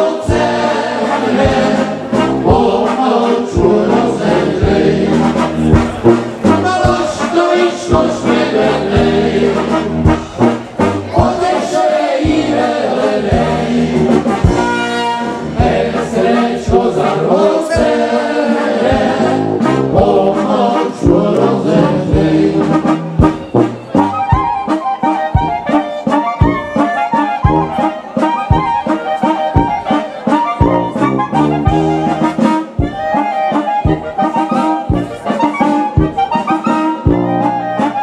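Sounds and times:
brass band through a pa: 0.0s - 38.0s
trombone: 0.0s - 38.0s
trumpet: 0.0s - 38.0s
steady bass beat: 0.3s - 24.6s.

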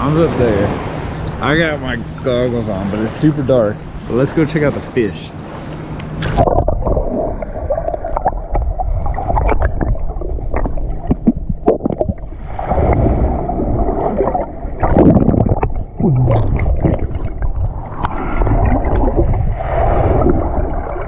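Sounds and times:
muffled underwater rush: 0.0s - 21.0s
underwater clicks and pops: 6.0s - 7.2s, 7.9s - 12.2s, 14.2s - 19.4s.

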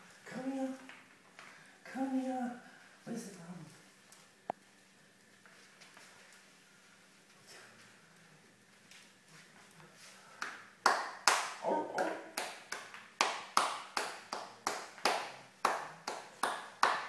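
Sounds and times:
hands clapping: 10.4s - 17.0s.

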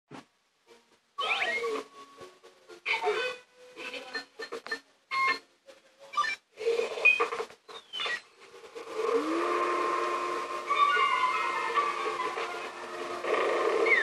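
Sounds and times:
cartoon music with held tones: 0.6s - 14.0s
cartoon sound effects: 1.2s - 1.8s, 2.9s - 3.4s, 10.7s - 12.7s.

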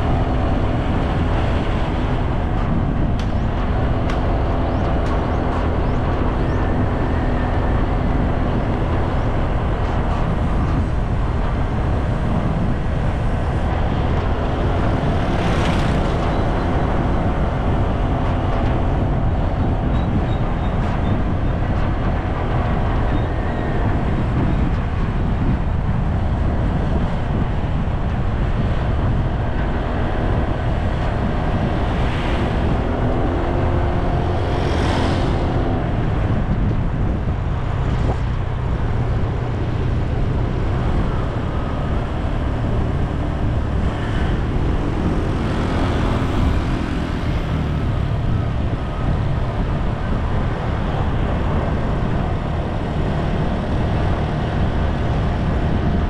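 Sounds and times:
rushing noise: 0.0s - 56.0s
vehicle engine running: 0.0s - 56.0s
wind rumble on microphone: 0.0s - 56.0s.

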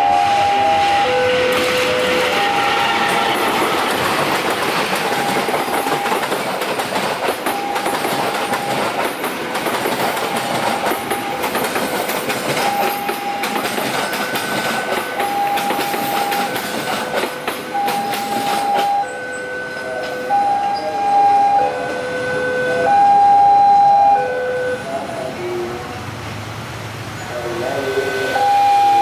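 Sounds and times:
steady high tone: 0.0s - 26.0s, 27.3s - 29.0s
train wheels clattering over rail joints: 1.5s - 19.1s.

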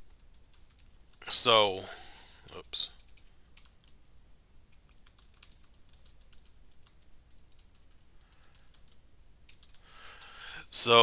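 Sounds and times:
typing on computer keyboard: 0.0s - 1.2s, 3.0s - 4.1s, 4.7s - 10.4s.

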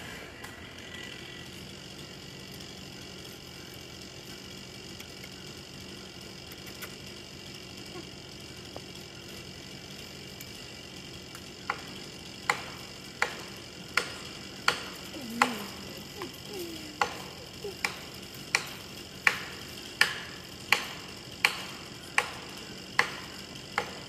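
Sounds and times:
steady low hum: 0.0s - 24.0s
hammer striking felling wedge: 12.5s - 15.7s.

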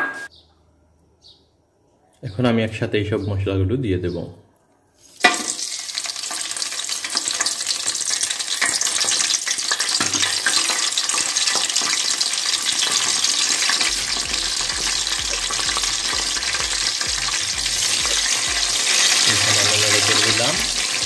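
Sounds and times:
spices sizzling in hot oil: 5.0s - 21.0s.

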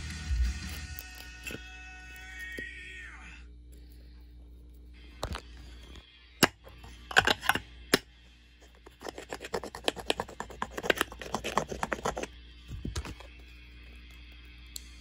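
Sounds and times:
fast scraping taps: 8.9s - 12.3s.

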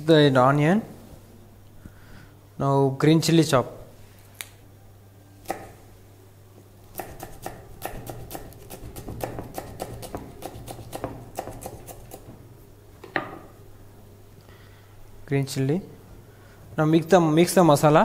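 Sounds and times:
knife chopping on wooden board: 5.5s - 5.8s, 6.9s - 12.4s.

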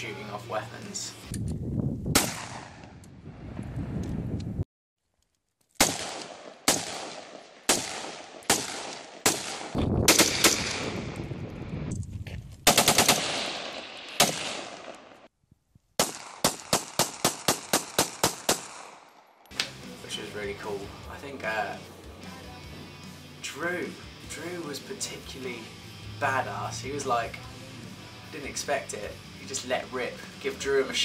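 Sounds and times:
rifle shots echoing: 2.2s - 3.0s, 5.8s - 11.2s, 12.6s - 15.3s, 16.0s - 19.3s
pistol firing rapidly: 5.8s - 10.9s, 12.7s - 14.9s, 16.0s - 19.0s.

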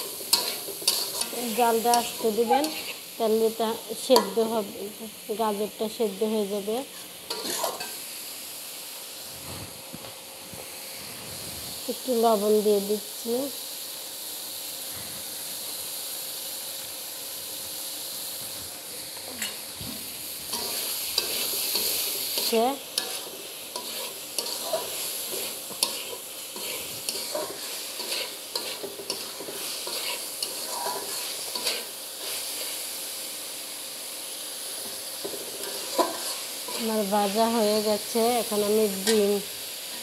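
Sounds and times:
metal spatula scraping a wok: 0.0s - 3.1s, 6.9s - 8.0s, 20.5s - 32.8s, 35.2s - 37.1s
vegetables sizzling in oil: 0.0s - 40.0s.

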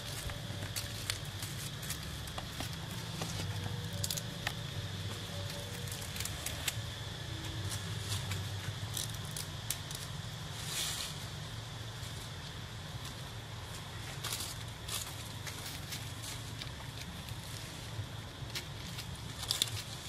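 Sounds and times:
rustling hiss: 0.0s - 20.0s.

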